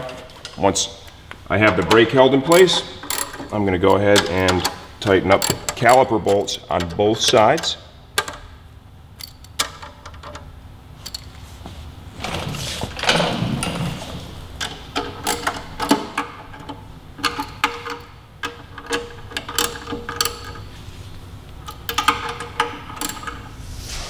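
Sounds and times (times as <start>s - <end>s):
socket ratchet clicking: 2.8s - 8.6s, 9.2s - 10.4s, 14.6s - 20.7s, 21.5s - 23.4s.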